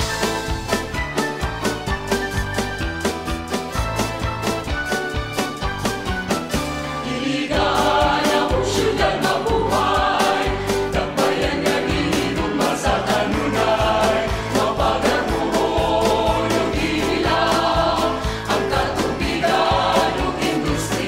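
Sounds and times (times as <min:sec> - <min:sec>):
instrumental accompaniment with beat: 0:00.0 - 0:21.0
choir singing a march: 0:07.0 - 0:21.0.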